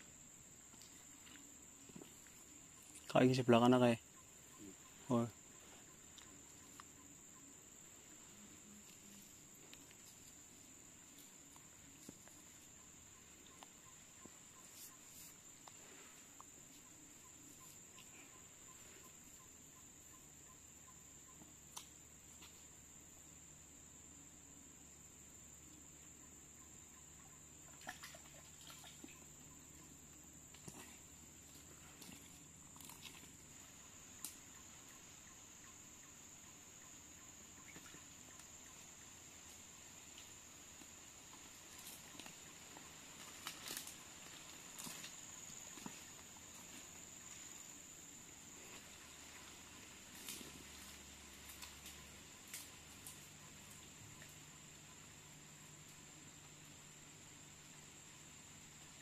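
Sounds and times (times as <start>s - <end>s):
faint ticks: 6.0s - 7.1s, 21.3s - 22.7s, 30.1s - 36.5s, 50.1s - 55.0s.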